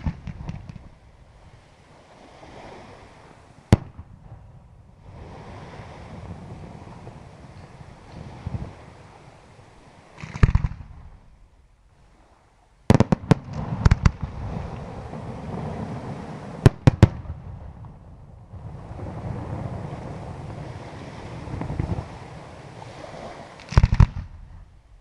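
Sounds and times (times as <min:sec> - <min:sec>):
fireworks booming and banging: 0:00.0 - 0:01.0, 0:10.2 - 0:11.2, 0:12.9 - 0:18.0, 0:21.3 - 0:22.2, 0:23.6 - 0:24.7.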